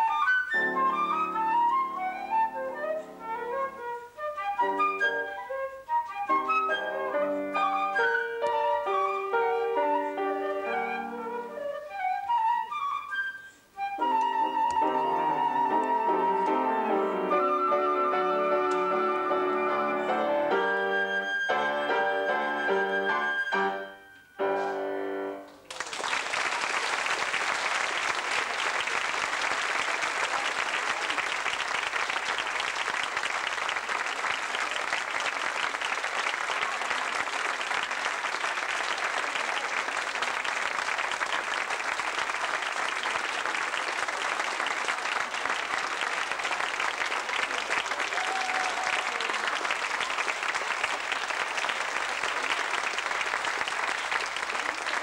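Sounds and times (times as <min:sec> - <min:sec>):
flute: 0:00.0 - 0:25.0
grand piano: 0:00.0 - 0:25.7
audience applauding: 0:25.6 - 0:55.0.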